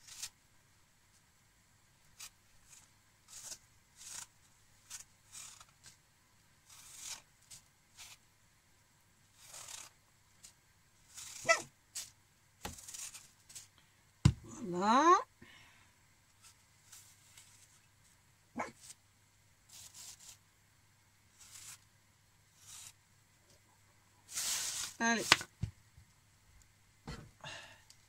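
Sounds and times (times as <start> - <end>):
peeler scraping apple skin: 0.0 - 0.4, 2.1 - 5.9, 6.6 - 8.2, 9.4 - 10.0, 11.1 - 13.3, 19.7 - 20.4, 21.4 - 21.8, 22.6 - 23.0.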